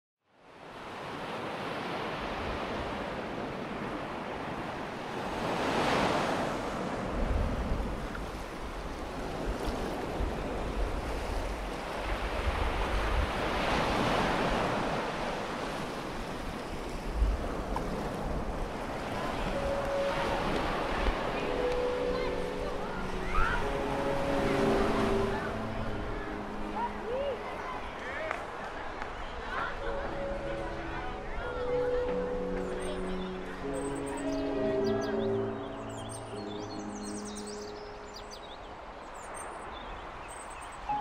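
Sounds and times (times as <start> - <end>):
waves breaking on beach: 0.4 - 35.2
wind buffeting microphone: 6.3 - 25.1.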